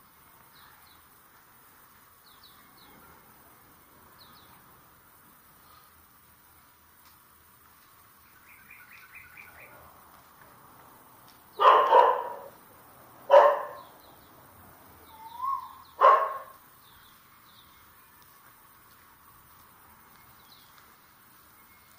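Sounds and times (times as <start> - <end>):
birds chirping: 0.0 - 6.8, 7.8 - 21.9
dog barking: 11.6 - 12.6, 13.3 - 13.9, 15.6 - 16.6.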